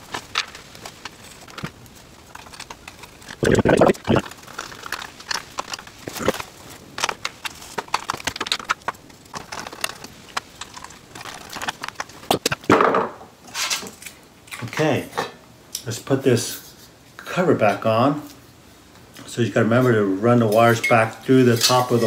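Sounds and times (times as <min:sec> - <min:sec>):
handling noise: 0:00.0 - 0:13.8.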